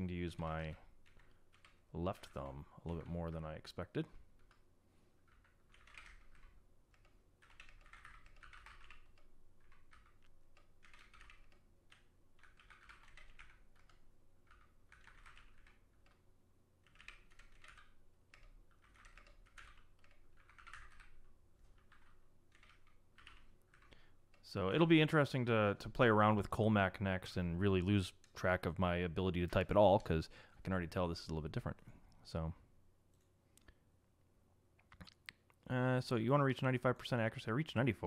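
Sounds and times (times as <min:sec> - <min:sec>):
keyboard typing: 0:01.0 - 0:03.4, 0:04.4 - 0:04.6, 0:05.2 - 0:24.6.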